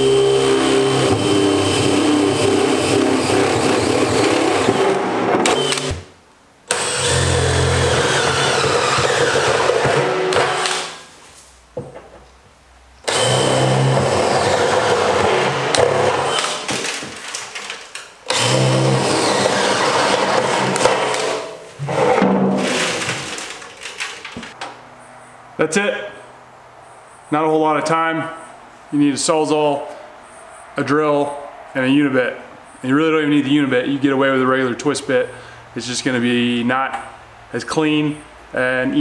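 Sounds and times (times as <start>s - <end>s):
cordless drill boring through steel: 0.0s - 6.0s, 6.7s - 11.0s, 13.1s - 16.6s, 18.3s - 21.4s.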